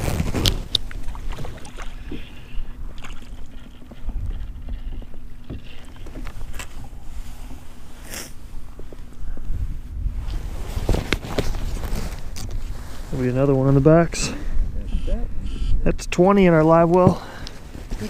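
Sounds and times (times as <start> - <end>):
boat motor low rumble: 0.0 - 10.8.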